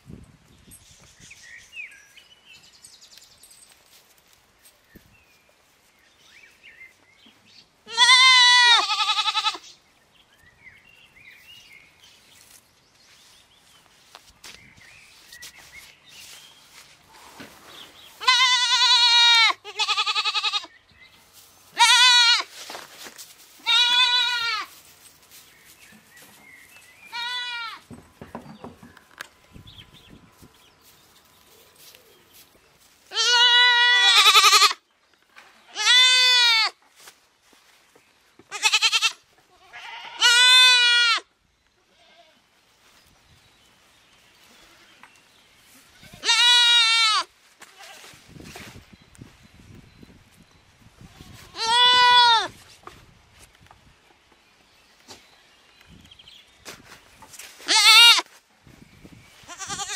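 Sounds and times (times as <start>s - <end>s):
goat kids bleating: 7.8s - 9.7s, 18.2s - 20.7s, 21.7s - 22.5s, 23.6s - 24.8s, 27.1s - 27.9s, 33.1s - 34.8s, 35.7s - 36.8s, 38.5s - 42.4s, 45.9s - 48.2s, 51.0s - 52.6s, 57.6s - 58.3s, 59.4s - 59.9s.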